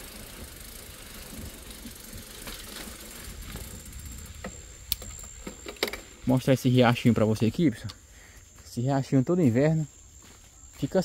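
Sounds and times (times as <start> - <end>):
bicycle rolling on road: 0.0 - 8.3.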